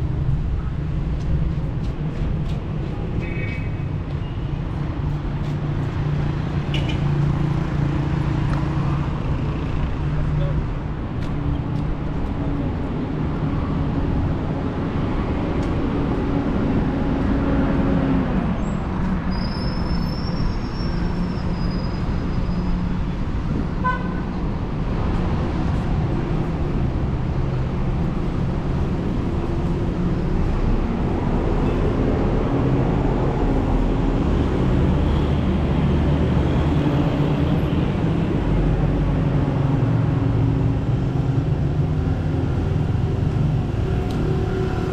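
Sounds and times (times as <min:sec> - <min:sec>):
traffic engines rumbling: 0:00.0 - 0:44.9.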